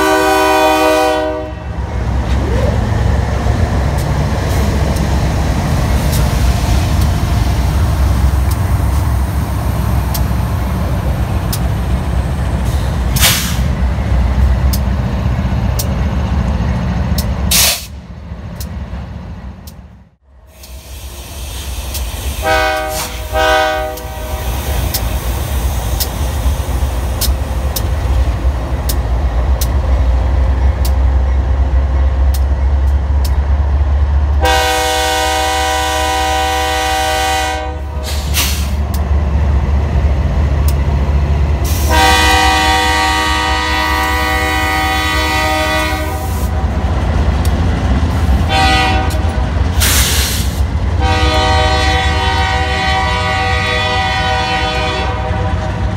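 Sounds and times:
locomotive air horn blasts: 0:00.0 - 0:01.8, 0:22.4 - 0:24.5, 0:34.4 - 0:38.4, 0:41.7 - 0:46.6, 0:48.4 - 0:49.3, 0:51.0 - 0:55.9
train engines and wheels rumbling: 0:00.0 - 0:55.9.

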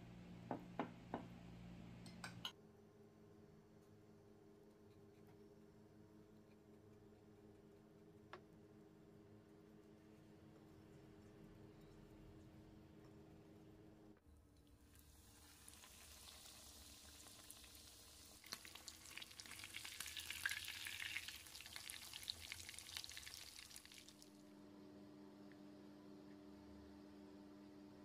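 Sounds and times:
cutlet sizzling in hot oil: 0:14.8 - 0:24.3.

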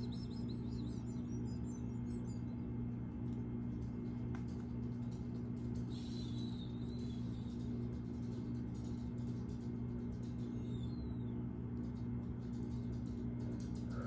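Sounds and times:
bird chirps: 0:00.0 - 0:02.7, 0:05.9 - 0:07.6
low droning hum: 0:00.0 - 0:14.0.

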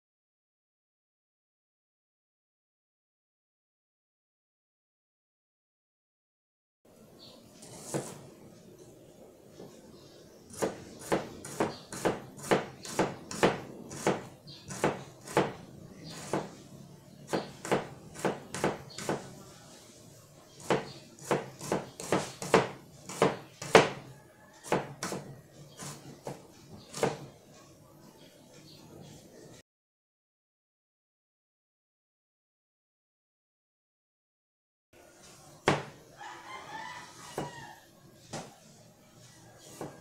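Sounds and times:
knife chopping onion on board: 0:07.6 - 0:08.2, 0:10.5 - 0:16.6, 0:17.3 - 0:19.3, 0:20.6 - 0:27.3, 0:35.6 - 0:36.0, 0:37.4 - 0:37.6, 0:39.6 - 0:40.0.

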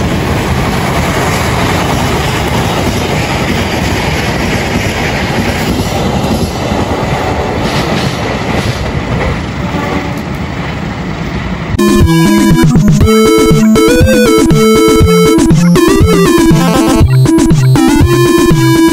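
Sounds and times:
train wheels on rails: 0:00.0 - 0:11.8.

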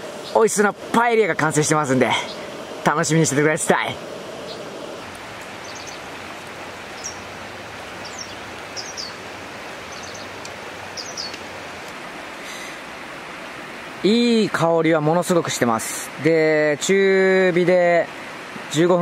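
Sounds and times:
steady hiss: 0:00.0 - 0:19.0
high bird chirps: 0:04.4 - 0:04.7, 0:05.6 - 0:06.1, 0:06.9 - 0:07.3, 0:08.0 - 0:09.2, 0:09.9 - 0:11.4.

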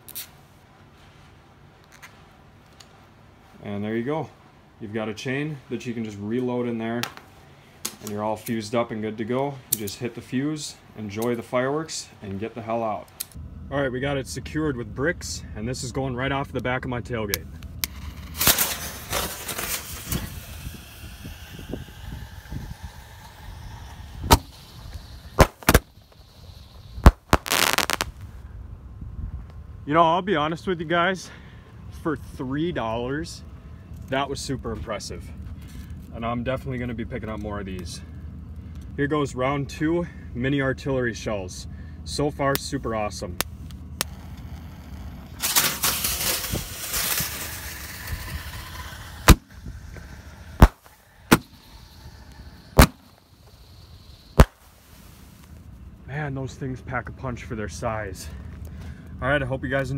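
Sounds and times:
firework shells banging: 0:17.8 - 0:28.2, 0:45.4 - 0:54.9
rapid crackling burst: 0:17.9 - 0:28.2, 0:45.3 - 0:55.4
fuse hissing: 0:18.4 - 0:28.1, 0:45.4 - 0:55.6.

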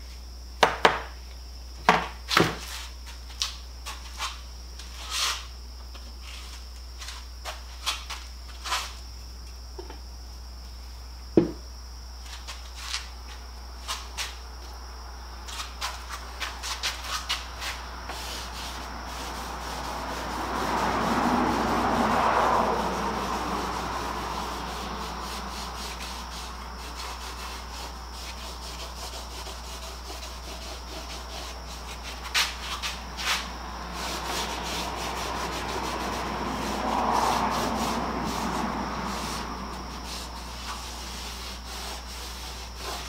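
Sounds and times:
steady high whine: 0:00.0 - 0:43.0
rushing noise: 0:17.6 - 0:26.6, 0:32.1 - 0:41.2.

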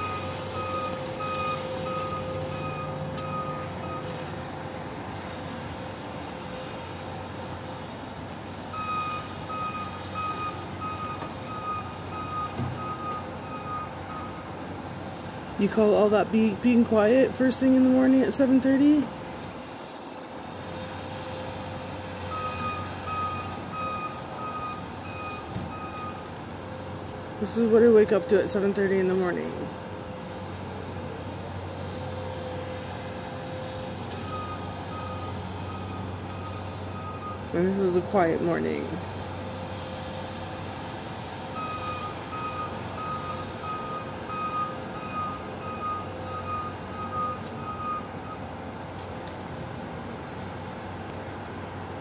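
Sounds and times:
backup alarm beeping: 0:00.0 - 0:04.2, 0:08.7 - 0:14.4, 0:22.2 - 0:26.2, 0:34.2 - 0:37.5, 0:41.5 - 0:48.4.

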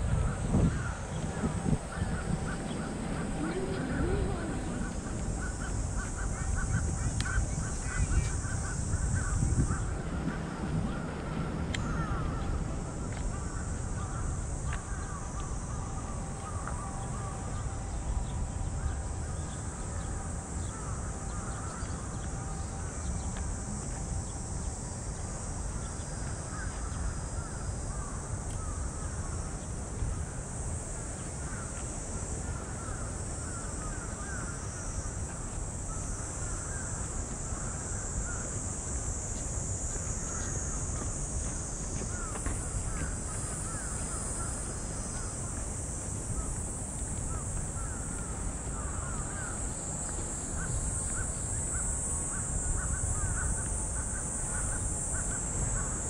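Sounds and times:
cicada drone: 0:00.0 - 0:56.0
crows cawing: 0:00.7 - 0:09.9, 0:10.9 - 0:12.6, 0:26.5 - 0:29.3, 0:31.4 - 0:31.8, 0:32.4 - 0:35.0, 0:35.9 - 0:38.6, 0:40.0 - 0:45.6, 0:46.4 - 0:56.0.

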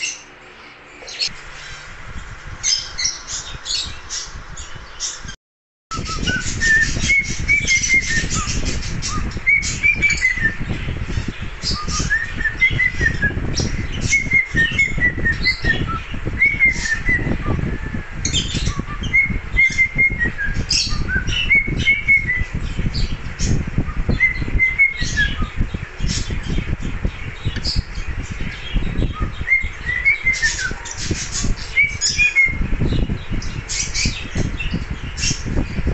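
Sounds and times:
cockatiel whistling: 0:05.9 - 0:10.6.

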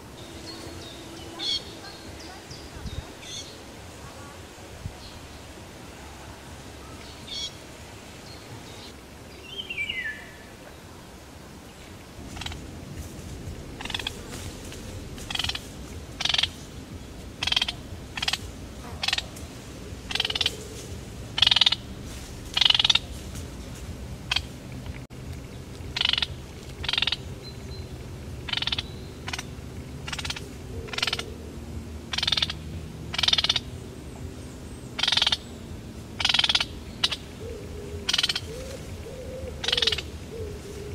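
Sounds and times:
kingfisher falling call: 0:12.3 - 0:19.4, 0:20.1 - 0:23.1
kingfisher shrill calls: 0:16.2 - 0:16.6, 0:17.4 - 0:18.4, 0:22.5 - 0:23.0.

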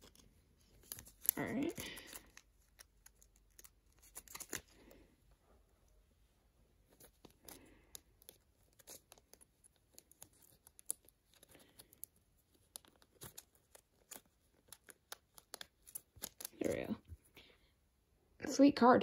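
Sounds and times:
cards being handled: 0:00.0 - 0:05.0, 0:06.8 - 0:17.4
foil wrapper crinkling: 0:00.0 - 0:05.0, 0:07.0 - 0:16.7.

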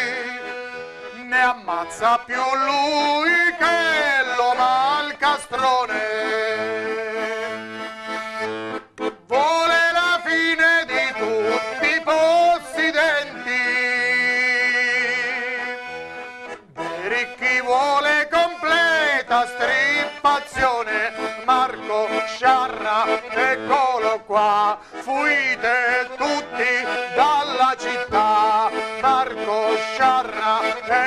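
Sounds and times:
button accordion folk melody: 0:00.0 - 0:31.0.

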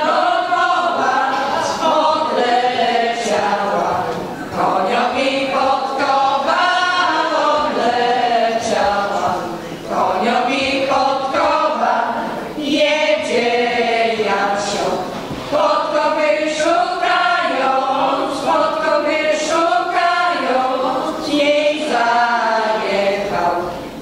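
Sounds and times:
women's choir singing unaccompanied: 0:00.0 - 0:24.0.

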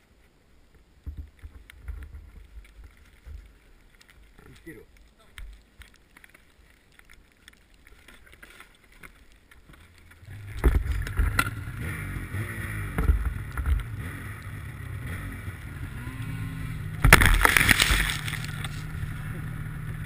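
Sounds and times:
snow buffeting camera: 0:09.8 - 0:20.0
snowmobile engine revving: 0:10.3 - 0:20.0.

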